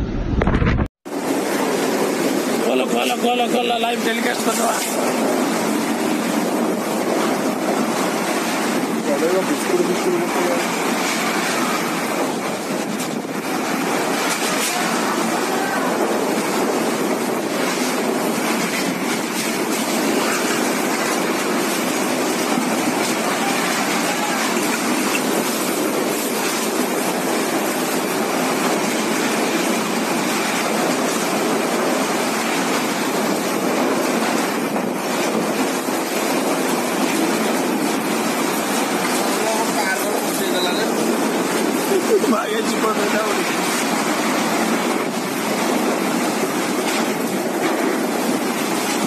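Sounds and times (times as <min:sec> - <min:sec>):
wind and driving rain: 0:00.0 - 0:49.0.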